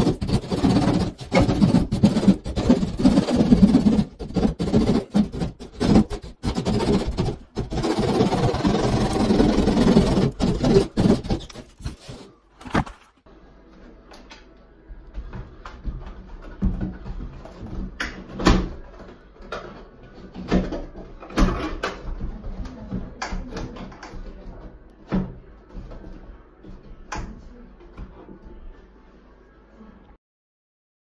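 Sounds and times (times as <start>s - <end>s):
hand saw rasping through plasterboard: 0.0s - 12.3s.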